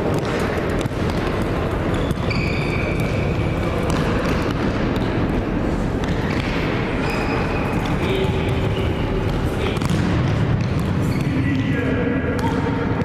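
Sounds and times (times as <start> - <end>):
ball kicked on hall floor: 0.0 - 6.9
players' footsteps: 0.0 - 11.5
sports hall noise: 0.0 - 13.0
high squeal: 1.9 - 3.4, 7.0 - 7.9.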